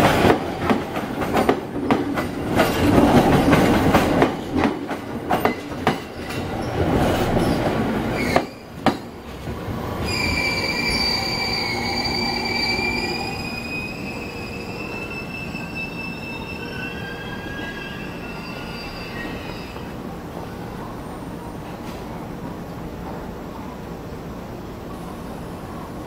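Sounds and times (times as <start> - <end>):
train running rumble: 0.0 - 10.2
train wheels squealing: 7.4 - 8.7, 10.0 - 20.0.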